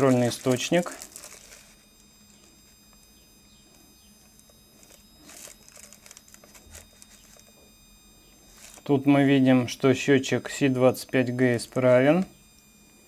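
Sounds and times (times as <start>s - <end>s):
plastic bag crinkling: 0.0s - 3.0s, 3.6s - 7.6s, 8.4s - 9.0s
faint high-pitched whine: 0.0s - 13.0s.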